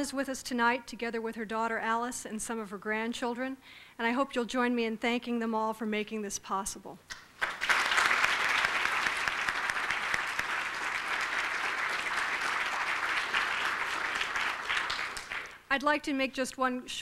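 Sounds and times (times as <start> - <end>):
audience applauding: 7.4 - 15.6.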